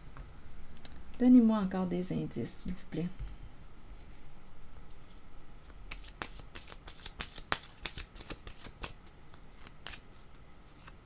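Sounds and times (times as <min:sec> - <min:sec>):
cards being shuffled: 0:04.9 - 0:11.0.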